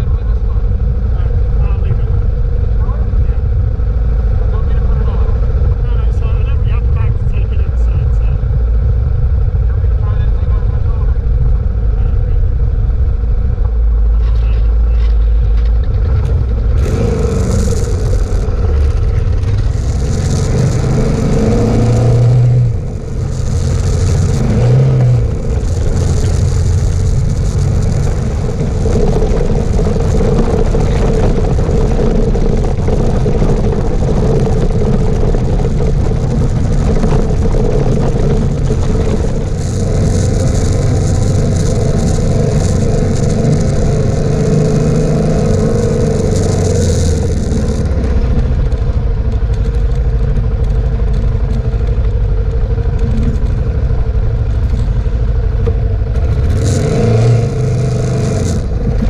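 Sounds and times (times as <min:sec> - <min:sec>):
rushing noise: 0:00.0 - 0:59.0
motorcycle engine pulling away: 0:15.5 - 0:59.0.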